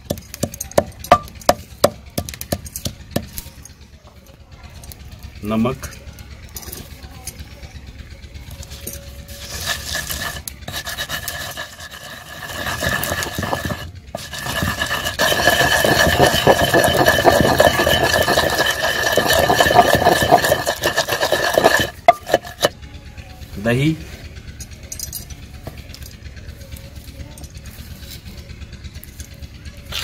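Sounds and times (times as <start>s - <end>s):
wooden pestle grinding in stone mortar: 0.0s - 3.4s, 9.3s - 22.8s.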